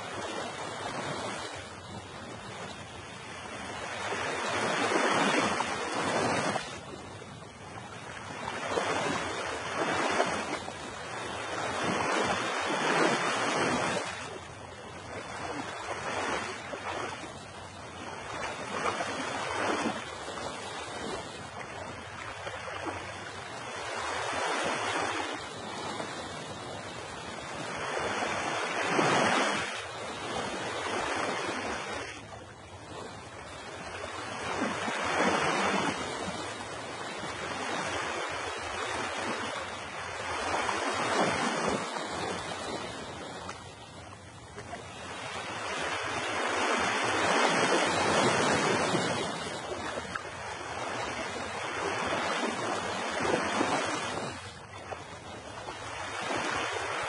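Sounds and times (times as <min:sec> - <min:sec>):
ocean surf breaking on shore: 0:00.0 - 0:57.0.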